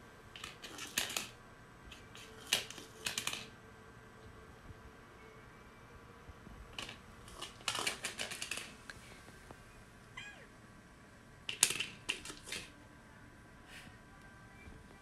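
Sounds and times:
cat clicking and clattering at dish: 0.4s - 3.5s, 6.8s - 8.8s, 11.5s - 12.7s
cat meowing: 10.1s - 10.5s.

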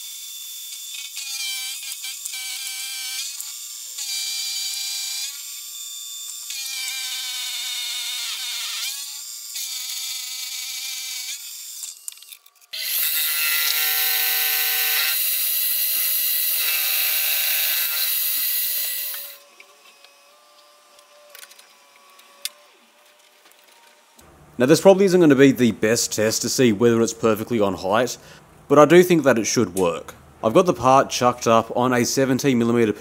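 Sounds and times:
milling cutter whining on metal: 0.0s - 24.2s.

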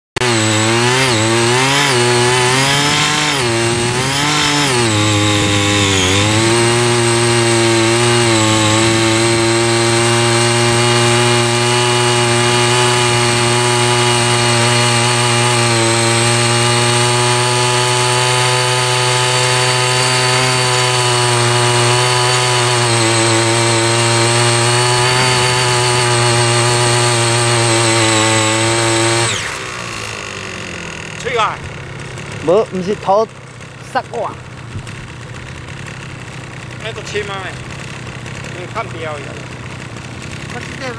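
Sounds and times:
small engine running at high speed: 0.2s - 40.9s
tines churning soil: 0.2s - 40.9s.

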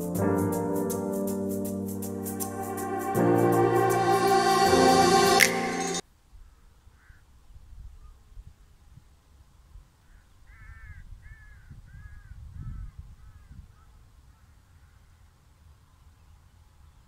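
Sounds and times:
crow cawing: 6.4s - 7.2s, 10.1s - 12.4s
wind rumble on microphone: 10.7s - 14.1s.

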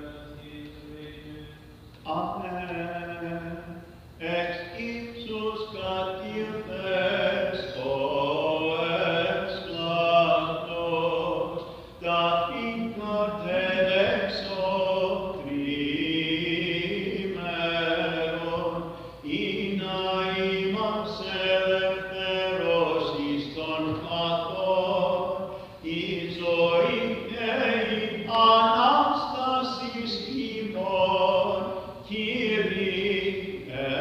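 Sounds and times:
voices chanting a hymn: 0.0s - 34.0s.

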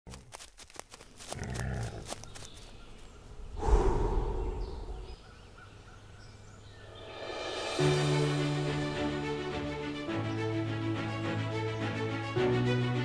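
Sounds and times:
forest ambience: 0.1s - 10.6s.

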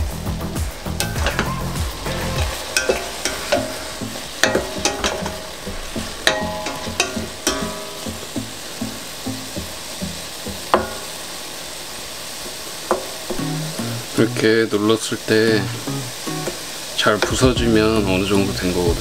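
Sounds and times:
apples sizzling: 0.0s - 19.0s
spatula knocking and scraping pot: 1.0s - 8.2s.

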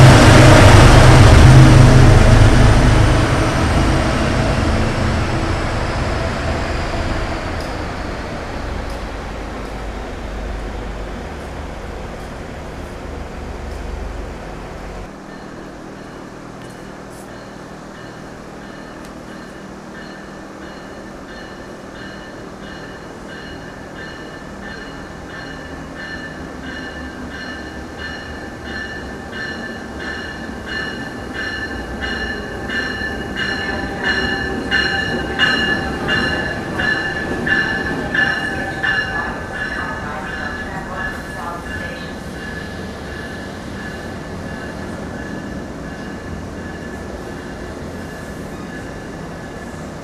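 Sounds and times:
train running on rails: 0.0s - 50.0s
high pulsing squeal: 17.3s - 49.9s.

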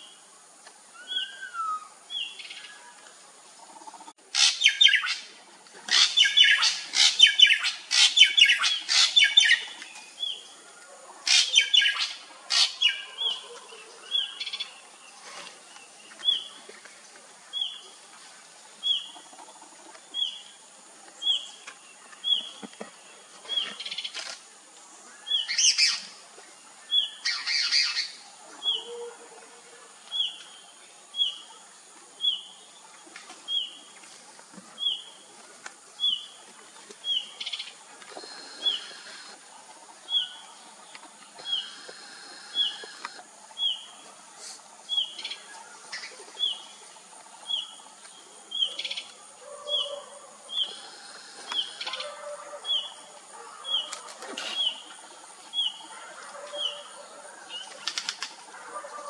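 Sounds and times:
steady high hiss: 0.0s - 49.5s, 50.2s - 58.6s.

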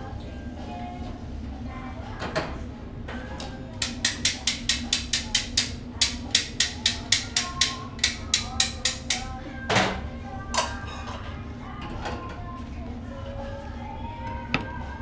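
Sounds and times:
metal spatula striking griddle: 3.8s - 9.3s.

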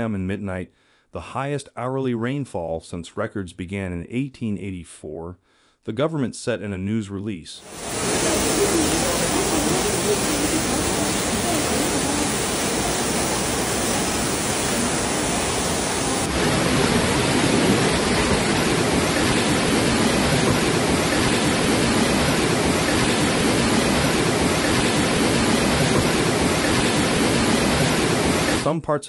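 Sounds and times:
rushing floodwater: 7.7s - 28.7s.

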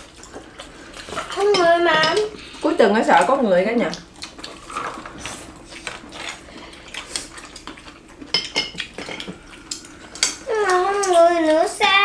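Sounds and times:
utensils clinking on bowls: 1.2s - 2.3s, 8.3s - 9.4s.

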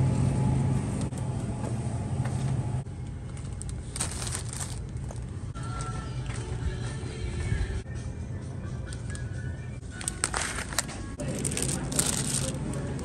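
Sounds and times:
low hum: 0.0s - 7.8s
road and engine noise: 0.0s - 7.8s, 10.3s - 13.0s.

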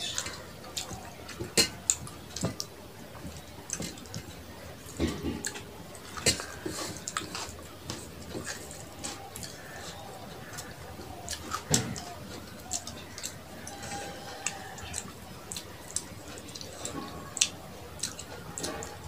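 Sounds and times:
chewing and lip smacking: 0.0s - 19.0s
fingers mixing food on plate: 0.0s - 19.0s.

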